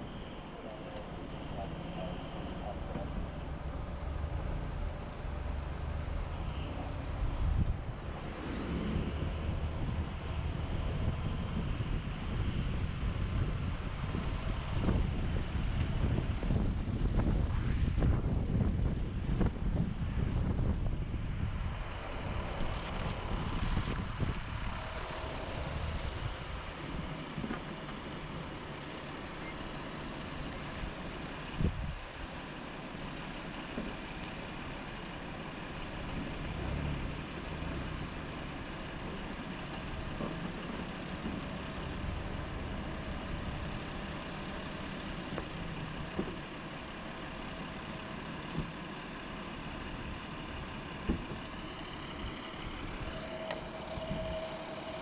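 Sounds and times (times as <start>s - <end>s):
vehicle engine idling: 0.0s - 55.0s.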